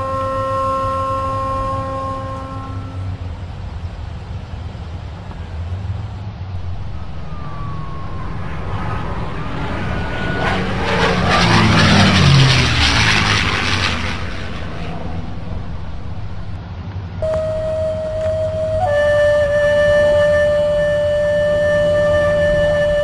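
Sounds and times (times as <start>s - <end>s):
propeller aeroplane passing by: 0.0s - 23.0s.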